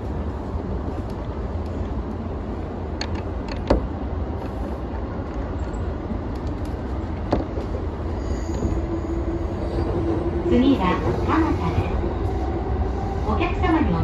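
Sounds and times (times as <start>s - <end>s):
train wheels rumbling on rail: 0.0s - 14.0s.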